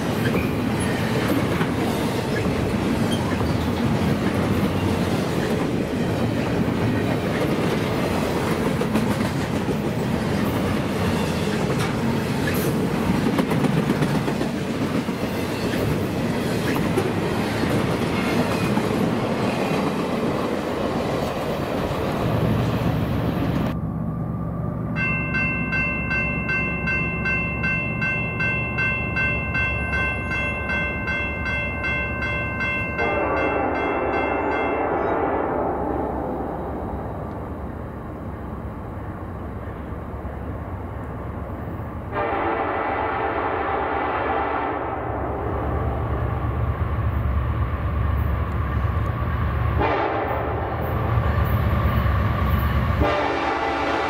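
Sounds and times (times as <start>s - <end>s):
diesel locomotive rumble: 15.8s - 33.7s
crossing bell ringing: 24.9s - 36.0s
locomotive air horn chord: 33.0s - 36.1s, 42.1s - 45.2s, 49.8s - 50.8s, 53.0s - 54.0s.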